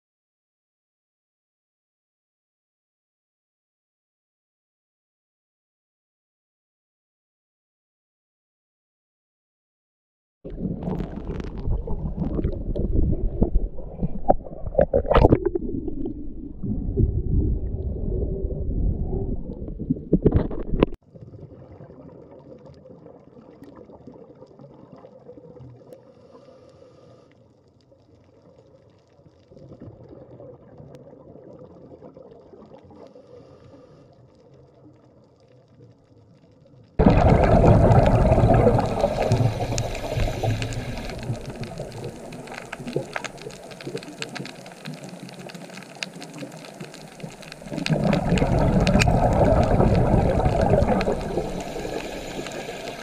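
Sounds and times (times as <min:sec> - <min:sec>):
muffled underwater sloshing: 0:10.5 - 0:25.1, 0:37.0 - 0:53.0
faint hiss: 0:26.1 - 0:27.4, 0:38.7 - 0:47.9, 0:48.8 - 0:53.0.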